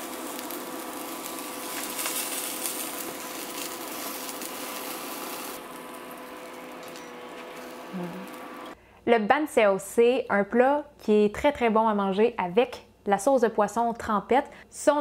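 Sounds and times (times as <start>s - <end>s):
crepe sizzling in oil: 0.0s - 8.8s.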